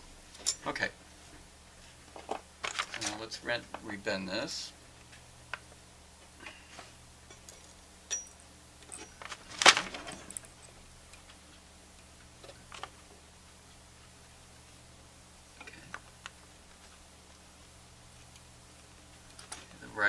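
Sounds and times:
wire lead clicks and rattles: 2.1 - 3.3, 7.4 - 11.4.

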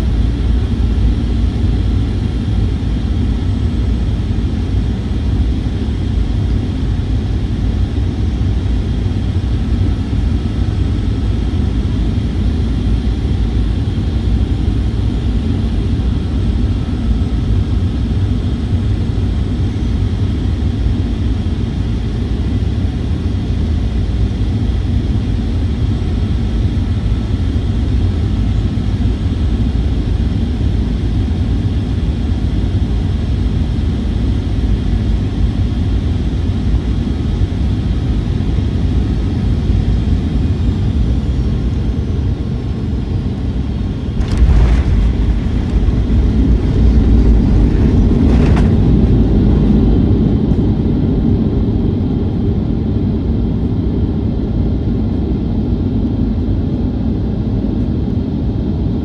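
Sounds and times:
airplane cabin rumble and hiss: 0.0 - 59.0
sudden thump: 44.1 - 49.4.

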